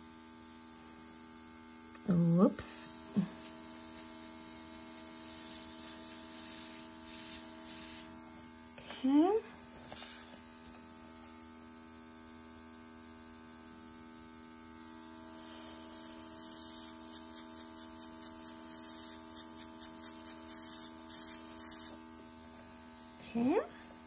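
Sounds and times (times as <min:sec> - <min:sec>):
airbrush hissing spurts: 0:02.8 - 0:08.2, 0:15.4 - 0:22.2.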